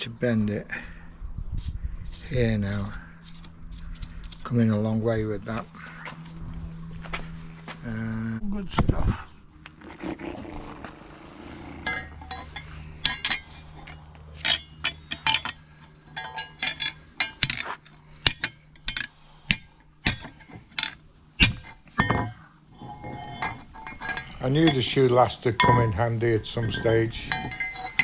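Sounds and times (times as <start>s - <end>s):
hammer striking metal: 14.4s - 22.4s, 23.8s - 28.0s.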